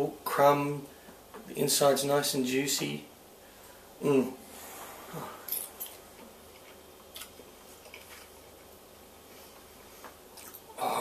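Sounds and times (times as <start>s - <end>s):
man chewing food: 5.8s - 10.8s.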